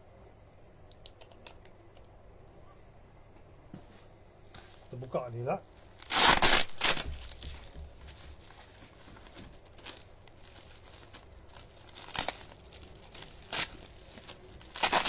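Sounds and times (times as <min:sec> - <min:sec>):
plastic wrap crinkling: 0:04.6 - 0:15.0
packing tape ripping: 0:05.8 - 0:15.0.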